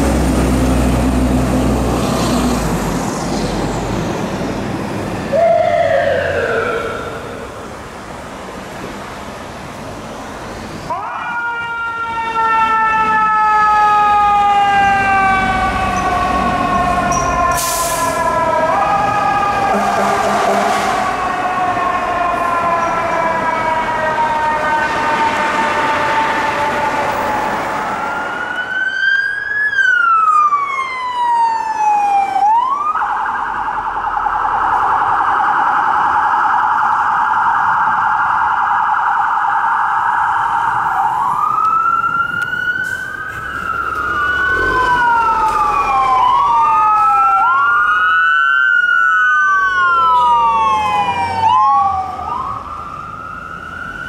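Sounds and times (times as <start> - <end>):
fire truck sirens wailing: 0.0 - 54.0
fast warbling siren tone: 30.0 - 54.0.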